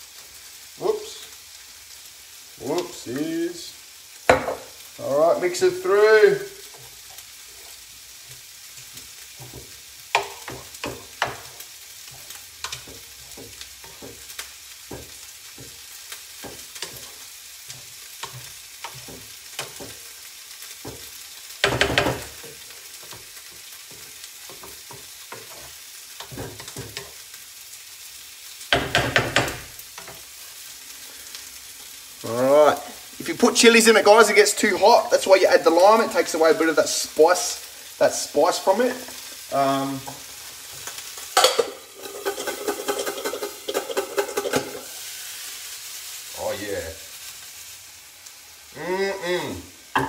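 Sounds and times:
meat sizzling in a frying pan: 0:00.0 - 0:50.0
wooden spoon scraping a pan: 0:06.4 - 0:27.3, 0:38.9 - 0:45.1.

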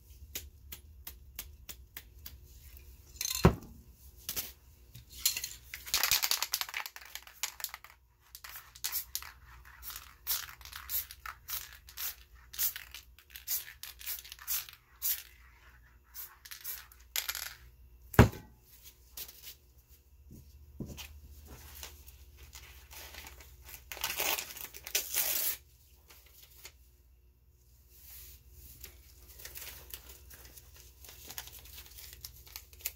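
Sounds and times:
crumpled material crinkling: 0:28.8 - 0:32.9.

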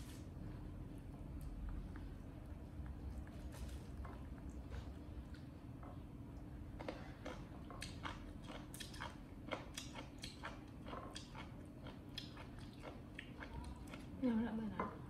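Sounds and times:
faint low hum: 0:00.0 - 0:15.0
monkeys chewing food: 0:01.2 - 0:14.5.

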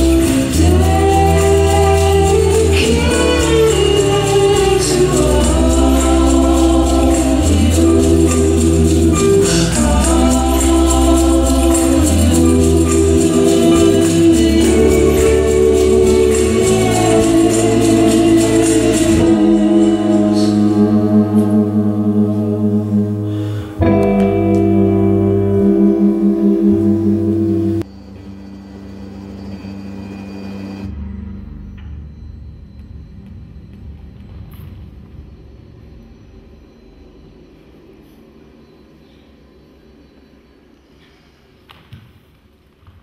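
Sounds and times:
voices singing: 0:00.0 - 0:27.8
high percussion beat: 0:00.0 - 0:27.9
sustained low tones: 0:00.0 - 0:38.0.

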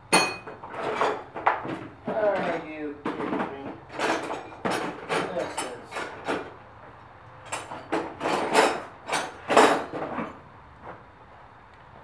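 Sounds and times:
wrenches clanking in metal toolbox: 0:02.1 - 0:06.5, 0:07.4 - 0:10.4.

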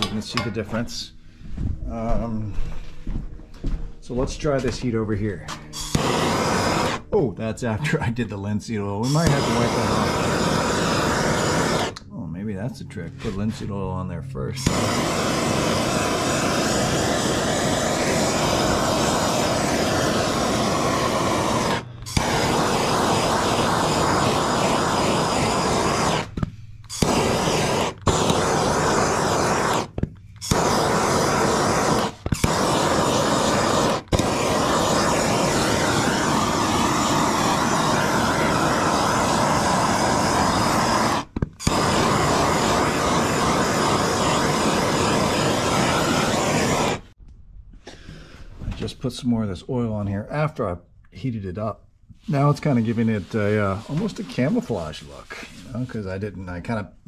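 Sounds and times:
gas torch hissing: 0:03.6 - 0:12.4, 0:14.5 - 0:47.2, 0:52.3 - 0:56.2.

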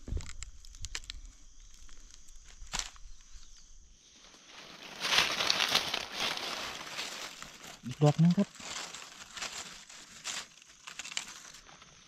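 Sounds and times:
dry leaves rustling: 0:04.2 - 0:12.0.

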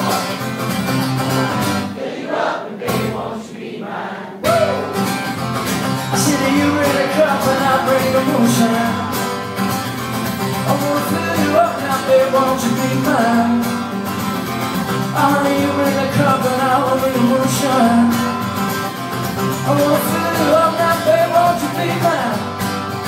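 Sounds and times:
acoustic guitar strumming: 0:00.0 - 0:02.0, 0:02.6 - 0:03.4, 0:04.4 - 0:23.0
person singing: 0:04.4 - 0:04.9, 0:06.1 - 0:09.3, 0:10.7 - 0:13.6.

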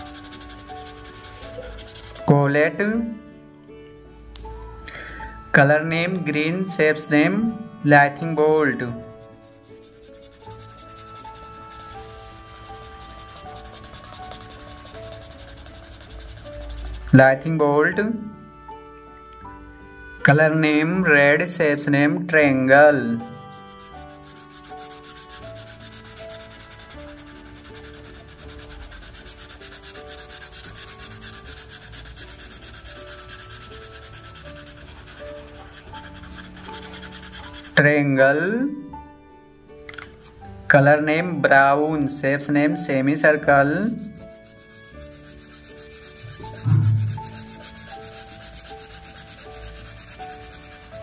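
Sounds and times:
marker pen scribbling on paper: 0:00.0 - 0:02.3, 0:09.0 - 0:17.1, 0:23.4 - 0:37.8, 0:44.0 - 0:51.0
soft background music: 0:00.0 - 0:51.0
soft melody: 0:00.0 - 0:51.0.

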